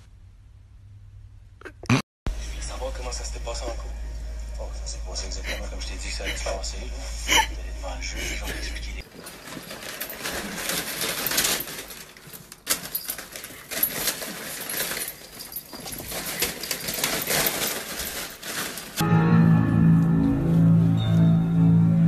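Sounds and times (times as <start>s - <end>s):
music: 2.3s - 9.0s, 19.0s - 22.0s
paper crinkling and tearing: 9.0s - 19.0s.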